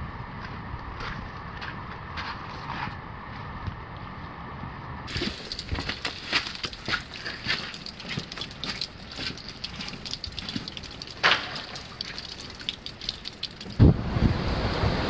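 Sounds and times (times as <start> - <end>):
campfire crackling: 5.1 - 13.8
fire cracking: 5.1 - 13.9.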